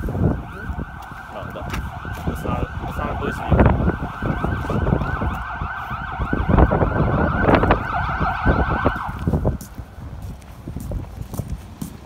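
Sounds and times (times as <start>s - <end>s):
footsteps: 0.0s - 2.6s, 7.7s - 12.0s
siren yelping: 0.0s - 9.6s.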